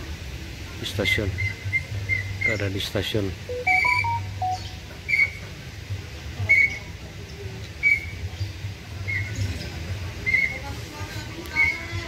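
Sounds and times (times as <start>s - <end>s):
bird whistling call: 3.5s - 5.4s, 6.5s - 6.9s, 7.8s - 8.2s, 10.2s - 10.6s.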